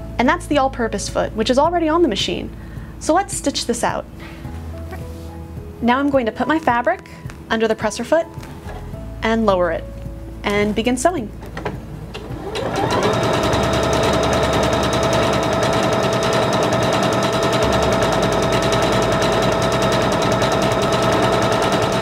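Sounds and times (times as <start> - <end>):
sewing machine running: 12.2 - 22.0.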